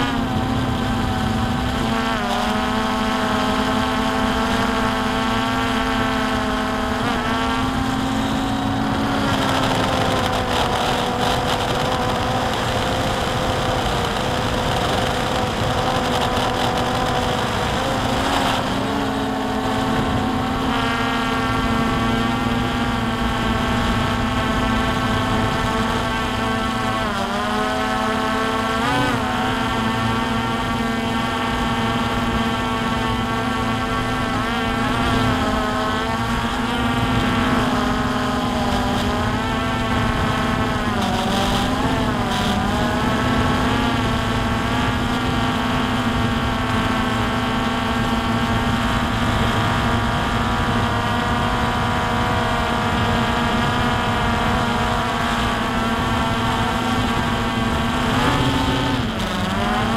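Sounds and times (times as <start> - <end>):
drone motors whining: 0.0 - 59.9.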